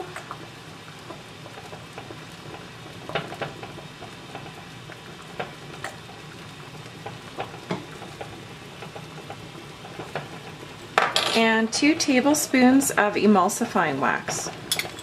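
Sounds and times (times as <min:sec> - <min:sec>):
water boiling in a saucepan: 0:00.0 - 0:15.0.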